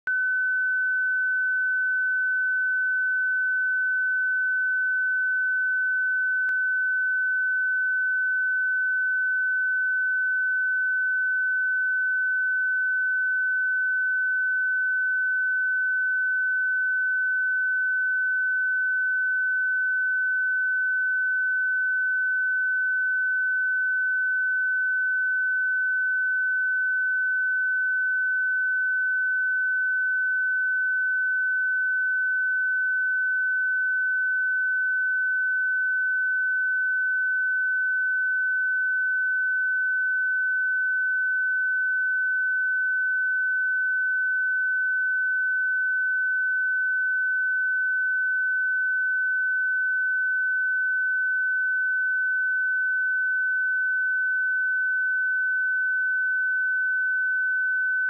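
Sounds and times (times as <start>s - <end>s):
high-pitched sine tone: 0.0s - 58.0s.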